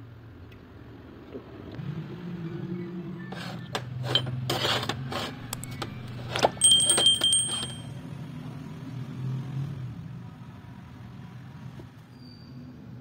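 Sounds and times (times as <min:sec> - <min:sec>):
metal parts clinking on workbench: 0:05.9 - 0:08.0
high metallic ring: 0:06.5 - 0:08.0.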